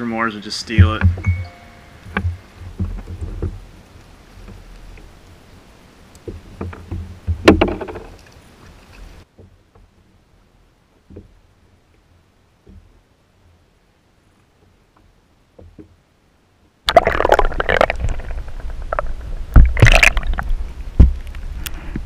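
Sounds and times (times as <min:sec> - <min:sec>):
knocks on plastic hull: 0:00.8 - 0:01.3
fish thrashing at surface: 0:16.9 - 0:20.6
water splashing against kayak: 0:16.9 - 0:22.0.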